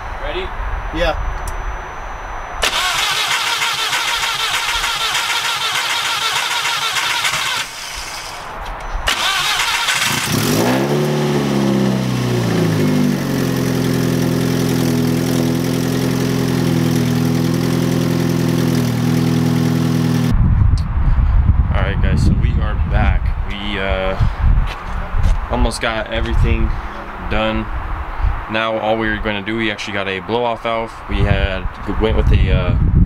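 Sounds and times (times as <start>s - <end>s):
engine cranking on starter: 2.6s - 8.5s, 9.1s - 10.8s.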